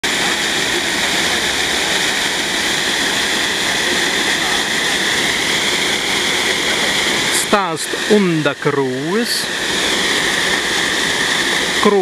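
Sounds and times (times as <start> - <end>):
water pouring over a weir: 0.0 - 12.0.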